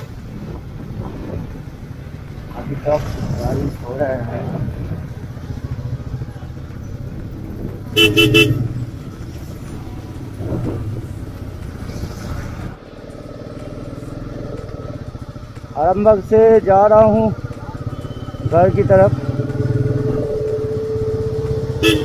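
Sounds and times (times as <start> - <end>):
motorcycle engine running: 4.6 - 22.0
vehicle horn toots: 8.0 - 8.7, 21.8 - 22.0.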